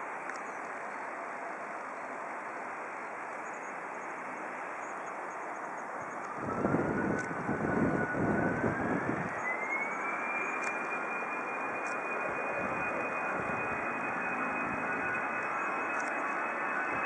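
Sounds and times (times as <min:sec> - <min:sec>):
jet engines spooling up: 0:05.8 - 0:17.0.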